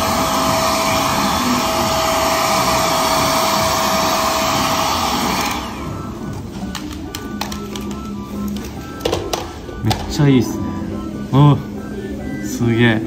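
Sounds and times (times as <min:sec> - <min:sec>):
hair dryer blowing: 0:00.0 - 0:06.3.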